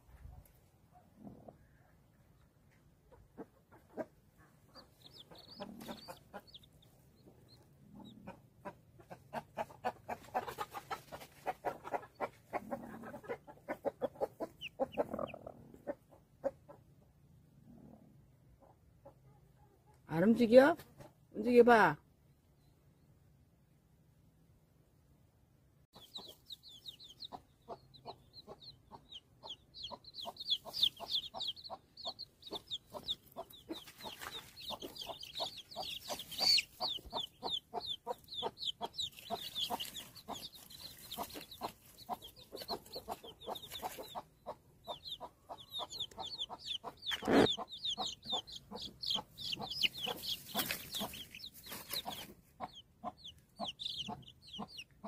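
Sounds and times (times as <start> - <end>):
hen clucking: 1.2 - 17.2, 26.0 - 55.0
chicks peeping: 2.3 - 16.8, 26.0 - 55.0.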